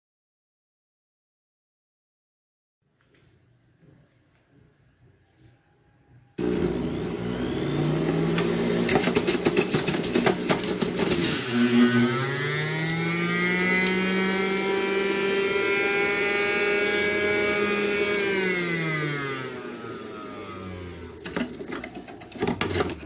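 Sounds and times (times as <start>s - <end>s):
juice extractor motor whine: 6.4s - 22.4s.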